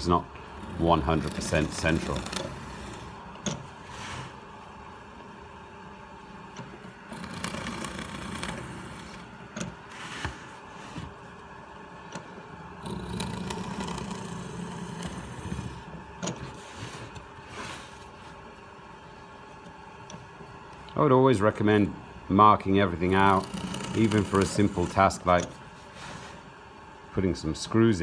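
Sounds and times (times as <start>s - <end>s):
drill press boring wood: 0.0s - 4.4s, 6.5s - 11.2s, 12.0s - 18.2s, 22.8s - 26.3s.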